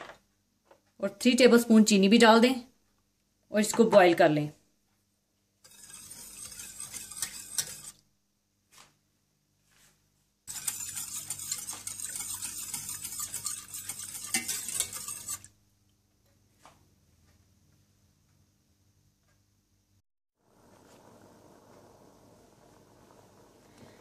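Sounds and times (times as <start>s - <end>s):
whisk scraping metal saucepan: 5.6s - 8.0s, 10.5s - 15.5s.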